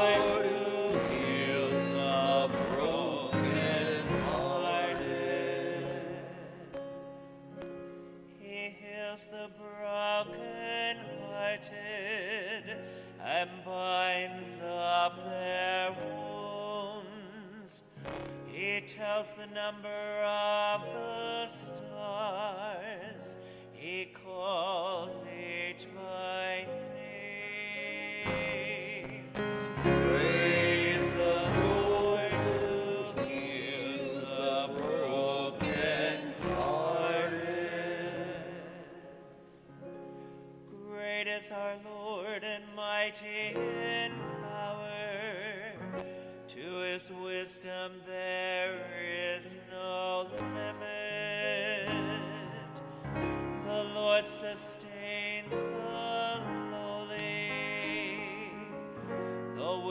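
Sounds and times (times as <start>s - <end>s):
person singing with vibrato: 0.0s - 6.9s, 8.3s - 39.6s
piano chords: 0.0s - 19.2s, 19.9s - 41.4s, 43.3s - 46.8s, 48.1s - 59.9s.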